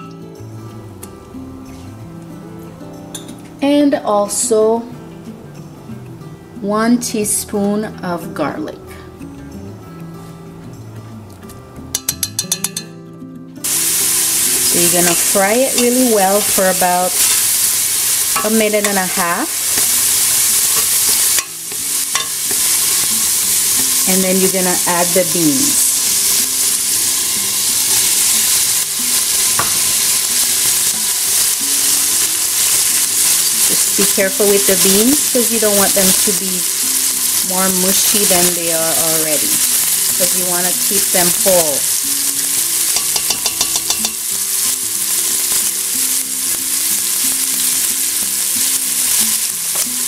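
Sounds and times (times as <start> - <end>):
oil sizzling in a pot: 13.6 - 50.0
spoon stirring: 14.3 - 24.6, 42.8 - 44.3.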